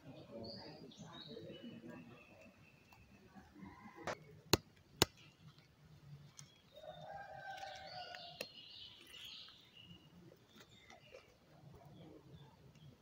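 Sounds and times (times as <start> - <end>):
rooster crowing faintly: 6.7 - 8.4.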